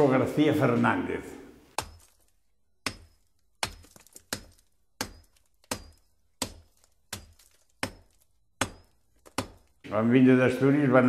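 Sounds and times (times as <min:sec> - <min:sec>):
hand tool striking hard material: 0:01.7 - 0:09.9.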